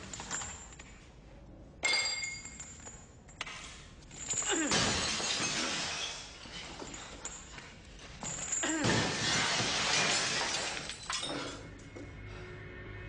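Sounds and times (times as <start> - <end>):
glass breaking: 4.2 - 7.6, 8.2 - 11.8.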